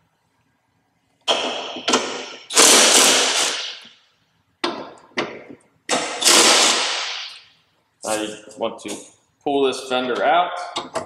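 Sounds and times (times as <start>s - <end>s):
impact wrench bursts: 1.3s - 3.9s, 5.9s - 7.4s.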